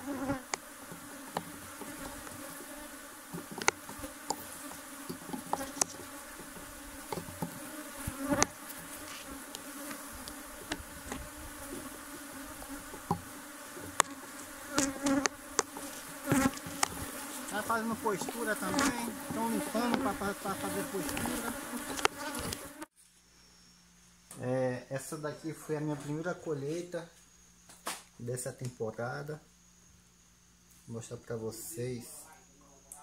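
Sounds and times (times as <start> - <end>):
honey bees buzzing: 0.0 - 22.9.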